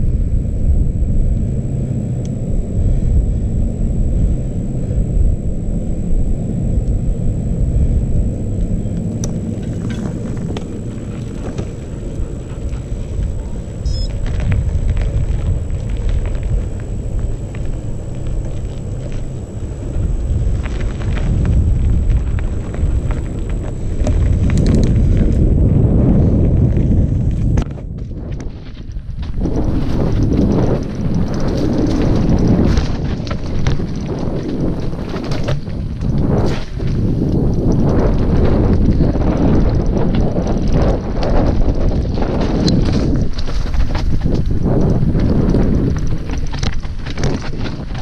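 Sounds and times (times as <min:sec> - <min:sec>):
tyres rumbling over rough trail: 0:00.0 - 0:48.0
wind buffeting microphone: 0:00.0 - 0:48.0
bike clicks and rattles: 0:06.4 - 0:48.0
loose stones rattling: 0:29.2 - 0:48.0.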